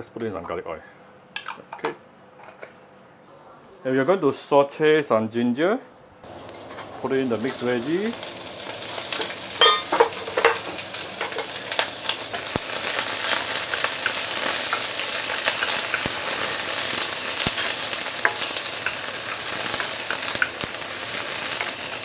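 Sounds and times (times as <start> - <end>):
vegetables sizzling in oil: 6.3 - 22.0
food clattering into pan: 9.1 - 12.0.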